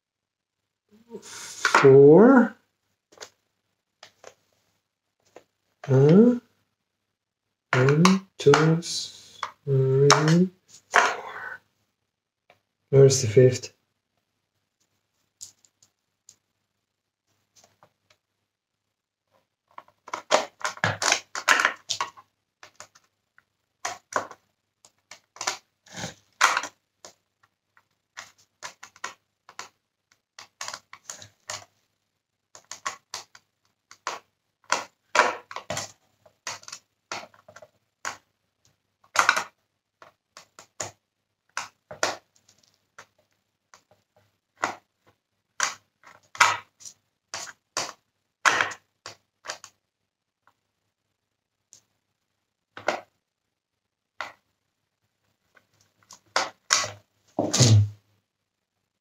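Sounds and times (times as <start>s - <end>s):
plastic clicks and rattles: 26.3s - 27.2s, 27.8s - 31.7s, 32.5s - 38.3s, 39.1s - 44.9s.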